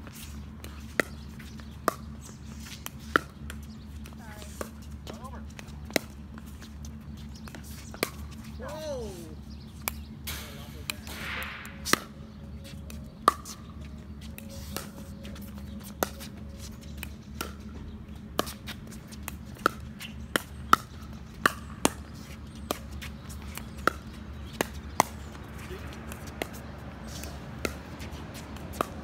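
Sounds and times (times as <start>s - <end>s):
ball bouncing on hard court: 10.3s - 12.2s, 19.5s - 29.0s.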